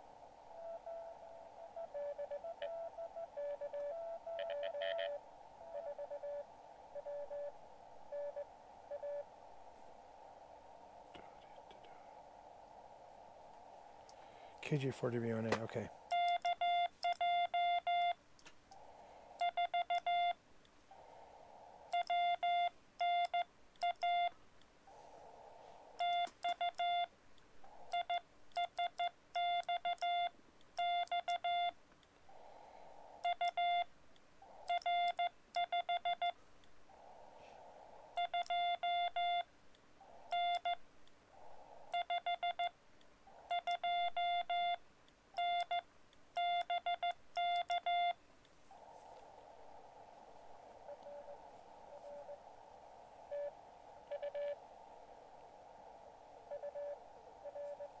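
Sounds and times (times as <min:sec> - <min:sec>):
radio receiver hiss: 0:00.0 - 0:58.0
morse code tones: 0:00.6 - 0:06.4, 0:15.8 - 0:18.2, 0:21.9 - 0:24.3, 0:26.0 - 0:27.1, 0:27.9 - 0:31.7, 0:40.3 - 0:40.8, 0:43.5 - 0:44.8, 0:45.4 - 0:45.8, 0:46.4 - 0:48.2, 0:50.9 - 0:52.4, 0:53.3 - 0:54.6, 0:56.5 - 0:58.0.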